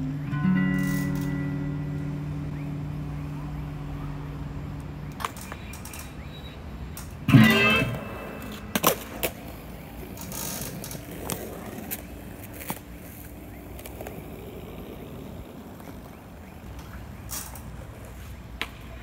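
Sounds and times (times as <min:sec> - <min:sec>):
electric guitar chord strummed: 0:07.3 - 0:08.7
skateboard clacking on pavement: 0:08.3 - 0:19.0.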